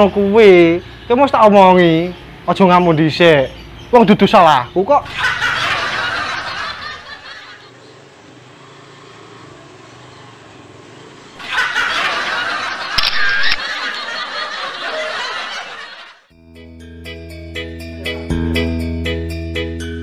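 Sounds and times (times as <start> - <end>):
snickering laughter: 5.1 - 7.7, 11.4 - 16.2.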